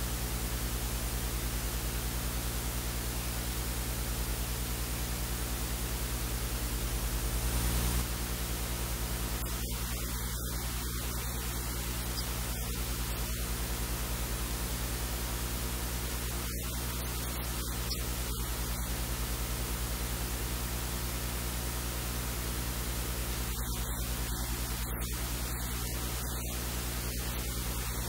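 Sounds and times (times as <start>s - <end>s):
low mains hum: 0.0s - 28.0s
electrical hiss: 7.2s - 28.0s.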